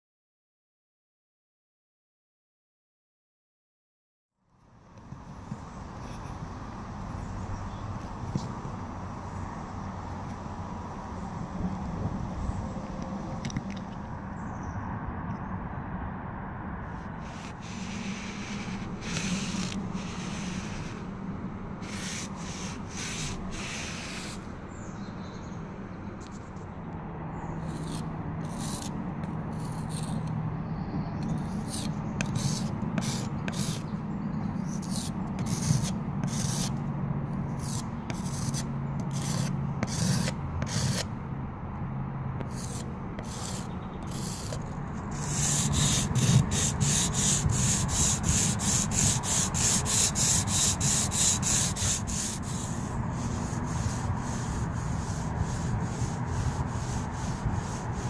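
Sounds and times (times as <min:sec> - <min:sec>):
tool rubbing on a wall: 0:17.2 - 0:21.1, 0:21.8 - 0:24.5, 0:31.3 - 0:33.9, 0:34.6 - 0:36.8, 0:37.6 - 0:41.1, 0:42.4 - 0:58.0
putty knife scraping a wall: 0:17.3 - 0:21.0, 0:21.8 - 0:24.4, 0:27.6 - 0:30.3, 0:31.2 - 0:33.9, 0:34.6 - 0:36.8, 0:37.6 - 0:41.1, 0:42.4 - 0:58.0.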